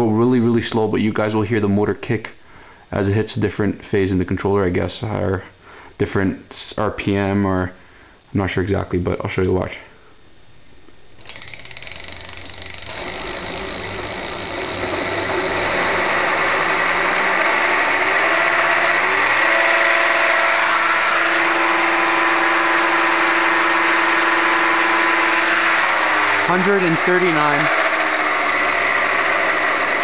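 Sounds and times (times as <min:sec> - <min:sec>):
electric hub motor whirring whine: 0:11.2 - 0:30.0.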